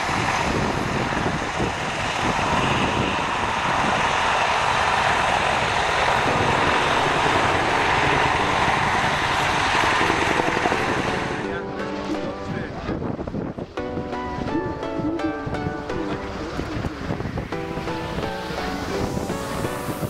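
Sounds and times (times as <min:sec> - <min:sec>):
helicopter rotor and turbine noise: 0:00.0 - 0:20.0.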